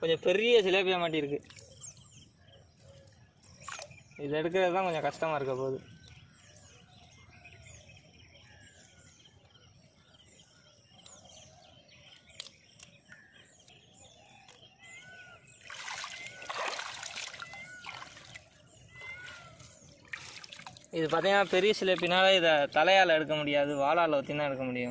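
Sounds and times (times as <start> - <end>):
small birds chirping: 0.0 - 24.9
water splashing and sloshing: 1.4 - 1.9, 3.0 - 4.1, 15.5 - 22.4
faint water trickle: 15.2 - 22.1.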